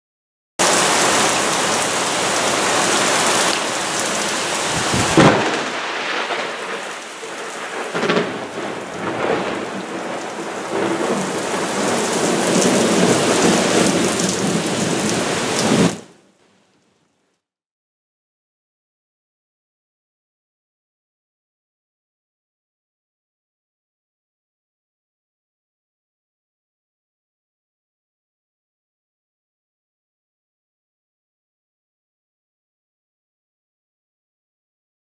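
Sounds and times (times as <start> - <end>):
thunder rumbling: 0.6 - 16.1
heavy rain pouring: 0.6 - 16.8
sharp loud thunder crack: 4.7 - 14.6.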